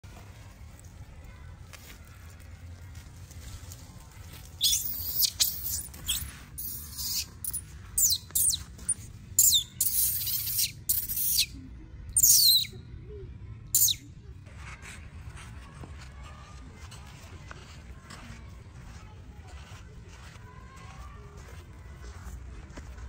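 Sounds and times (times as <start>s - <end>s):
baby monkey screaming: 4.6s - 8.7s, 9.4s - 11.5s, 12.2s - 12.7s, 13.8s - 14.0s.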